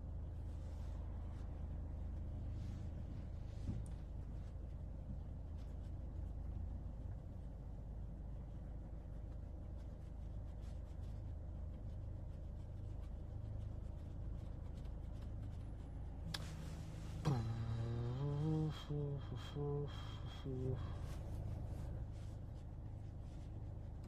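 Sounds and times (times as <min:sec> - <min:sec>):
low background rumble: 0:00.0 - 0:24.0
person humming low note: 0:16.3 - 0:21.7
breath-like rush: 0:16.8 - 0:22.1.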